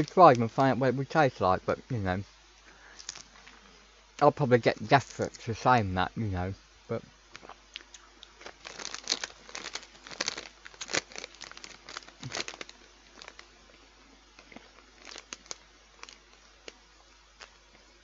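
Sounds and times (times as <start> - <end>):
crisp packet rustling: 0.0 - 0.8, 2.9 - 3.6, 4.6 - 5.4, 8.2 - 13.5, 14.4 - 17.6
crisps being chewed: 2.9 - 3.6, 7.3 - 13.5, 14.3 - 17.9.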